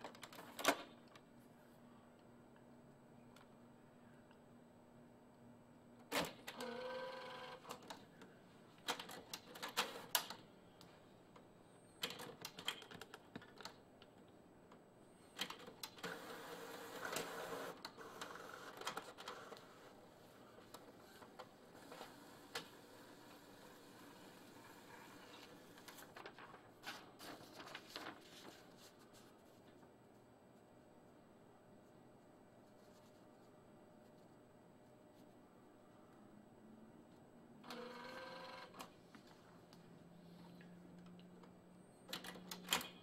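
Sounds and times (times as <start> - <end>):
printer motor whirring: 16.0 - 20.0, 37.6 - 38.8.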